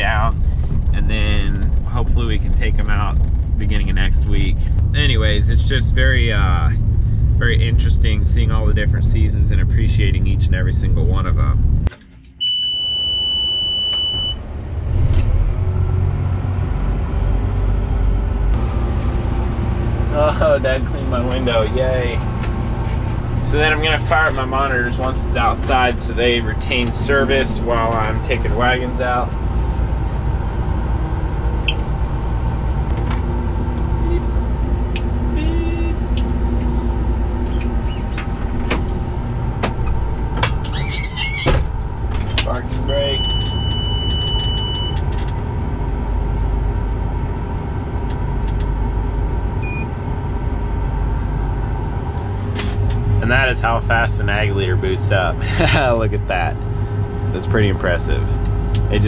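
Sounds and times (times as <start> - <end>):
tractor engine running: 0.0 - 12.4, 14.4 - 59.0
high-pitched squeal: 40.6 - 41.7
high-pitched warning tone: 42.8 - 45.0.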